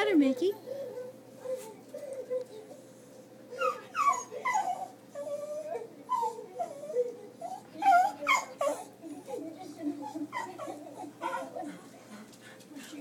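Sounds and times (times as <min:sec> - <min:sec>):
dog whining and yipping: 0:03.5 - 0:08.9.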